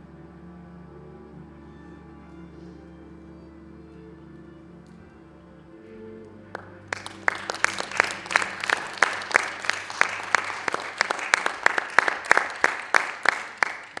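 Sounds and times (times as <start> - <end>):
audience applauding: 6.5 - 14.0.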